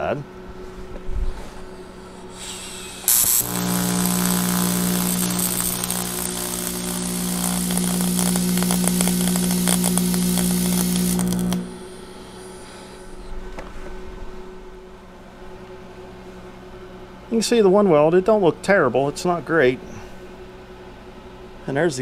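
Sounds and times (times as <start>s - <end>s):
welding arc buzzing: 1.7s - 13.2s
welding arc strike crackle: 2.3s - 12.8s.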